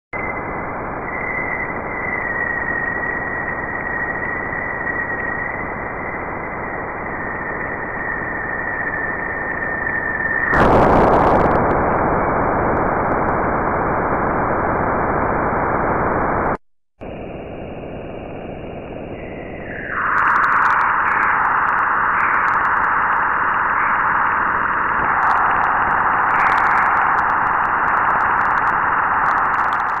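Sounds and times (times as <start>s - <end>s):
loud rush of noise: 10.5s - 30.0s
steady high tone: 17.0s - 30.0s
loud rough band of noise: 19.9s - 30.0s.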